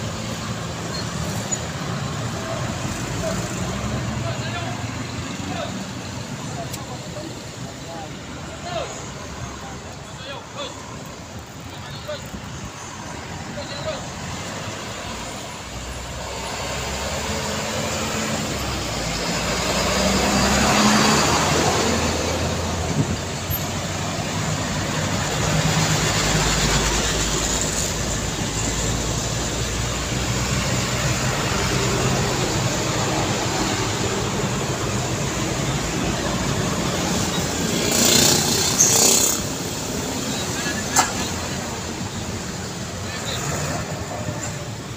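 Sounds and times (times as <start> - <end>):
cars passing: 0.0 - 44.9
diesel truck passing: 0.0 - 44.9
motor scooters passing: 14.1 - 44.9.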